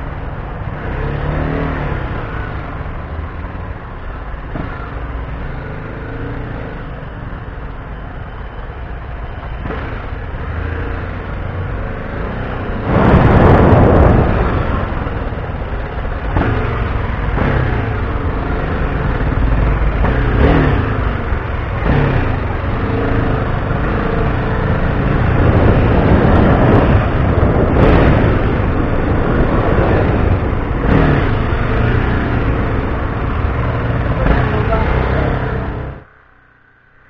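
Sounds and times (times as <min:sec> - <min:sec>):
motorcycle engine accelerating: 0:00.0 - 0:37.0
wind buffeting microphone: 0:11.4 - 0:34.5.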